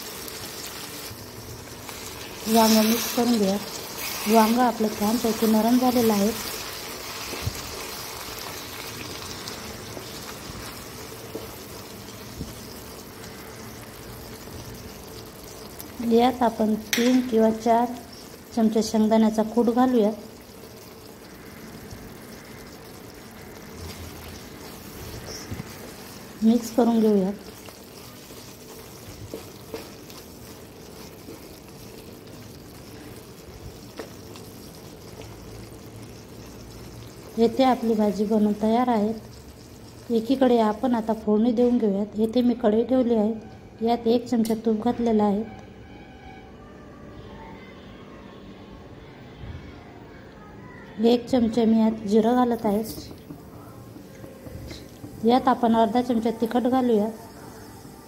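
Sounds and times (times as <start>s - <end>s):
curry bubbling and sizzling: 0.0s - 41.9s, 52.0s - 58.0s
wooden spatula stirring: 1.8s - 12.7s, 23.7s - 38.2s
spatula tapping: 27.5s - 31.7s.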